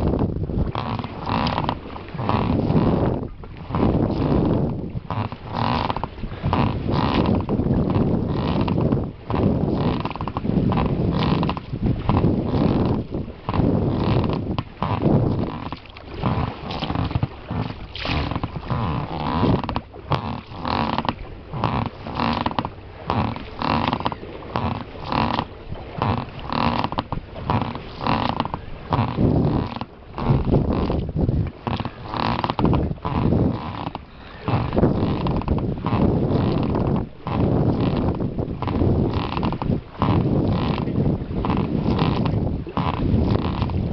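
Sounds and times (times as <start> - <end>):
oar blades splashing water: 0.0 - 43.9.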